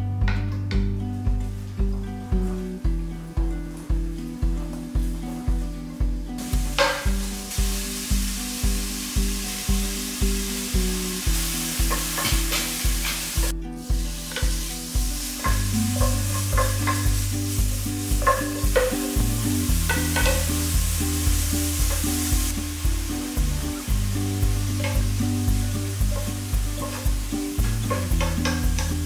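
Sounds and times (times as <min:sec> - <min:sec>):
background music with steady beat: 0:00.0 - 0:29.0
food sizzling in hot oil: 0:06.4 - 0:29.0
wooden spatula scraping pan: 0:24.6 - 0:29.0.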